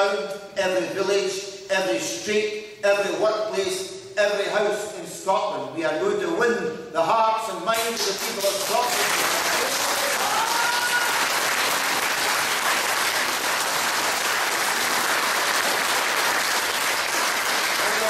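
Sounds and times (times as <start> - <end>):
audience applauding: 8.0 - 18.0.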